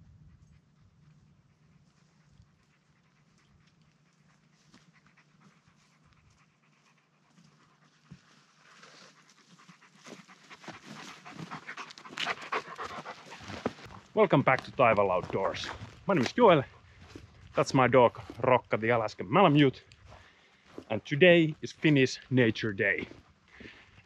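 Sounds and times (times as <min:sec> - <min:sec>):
dog panting: 0:00.4 - 0:13.9.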